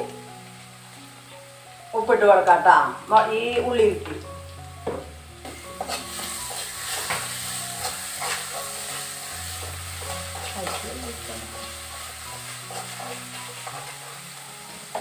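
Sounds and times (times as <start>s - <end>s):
onion sizzling in oil: 0.0s - 15.0s
steel spoon scraping pan: 5.7s - 10.9s, 11.9s - 14.2s.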